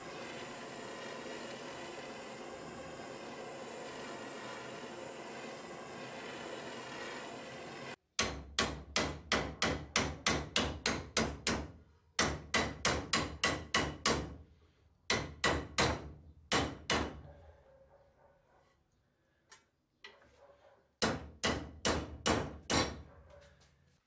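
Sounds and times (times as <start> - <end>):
blowtorch hissing: 0.0 - 8.0.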